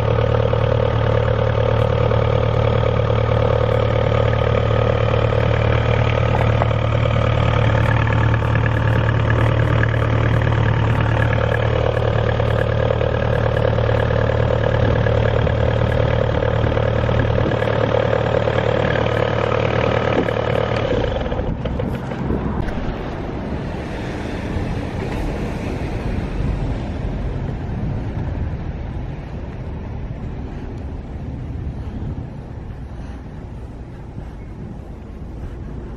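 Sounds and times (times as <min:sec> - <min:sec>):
diesel engine running: 0:00.0 - 0:35.9
wind on microphone: 0:14.7 - 0:19.4, 0:20.0 - 0:35.9.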